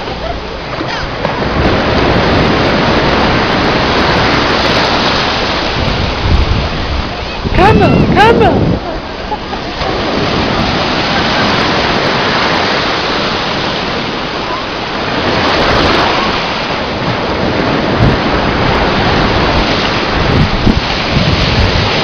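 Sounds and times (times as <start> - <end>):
surf at shoreline: 0.0 - 22.0
wind buffeting microphone: 1.1 - 22.0.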